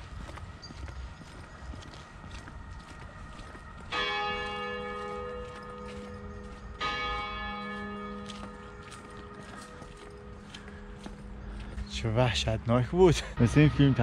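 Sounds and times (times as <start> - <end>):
church bell tolling: 3.9 - 14.0.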